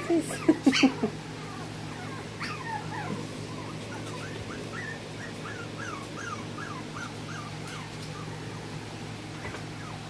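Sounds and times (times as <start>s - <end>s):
puppy whimpering: 0.0s - 10.0s.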